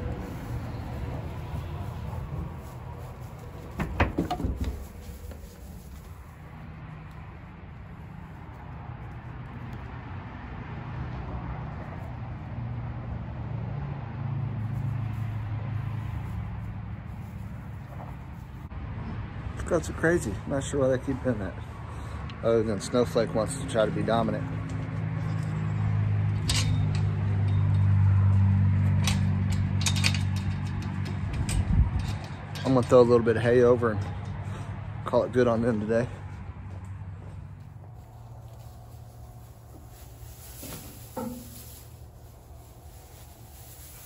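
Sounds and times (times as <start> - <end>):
engine running with low hum: 0.0 - 19.6, 23.4 - 44.0.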